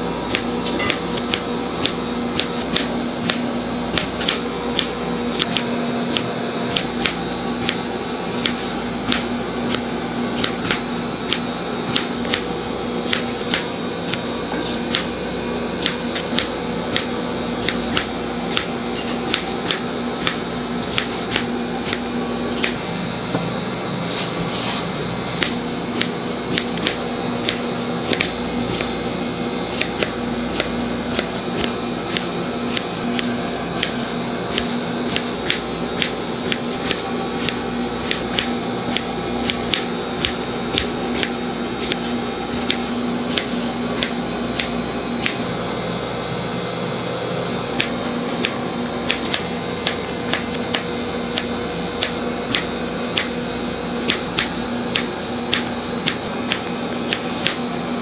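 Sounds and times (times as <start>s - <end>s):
steady mechanical hum: 0.0s - 58.0s
knife tapping cutting board: 33.1s - 42.0s, 54.1s - 57.6s.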